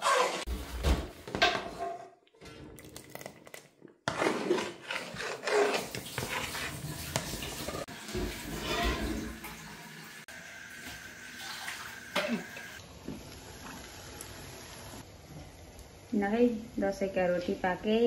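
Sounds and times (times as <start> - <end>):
utensil scraping cookware: 4.0 - 9.4.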